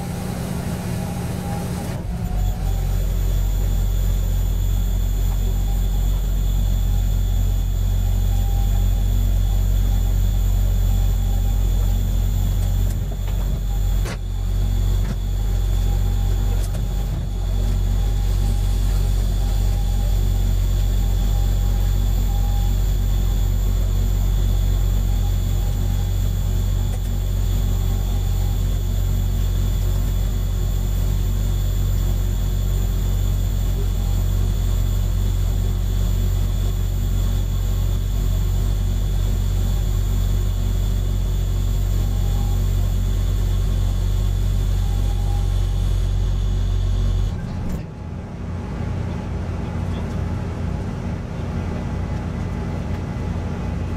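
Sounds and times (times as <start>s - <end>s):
diesel engine idling: 0.0s - 47.8s.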